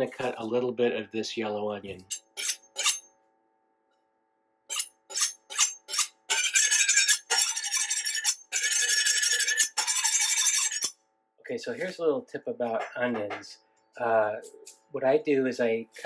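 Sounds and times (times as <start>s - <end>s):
knife scraping on sharpening steel: 2.1s - 3.1s, 4.7s - 11.0s.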